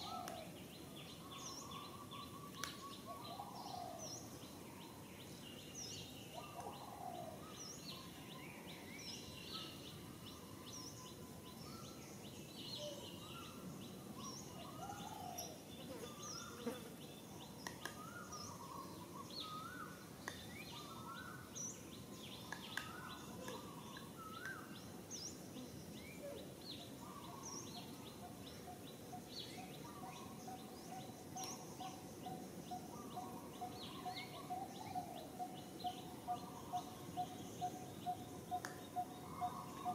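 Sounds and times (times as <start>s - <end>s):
outdoor background hiss: 0.0s - 39.9s.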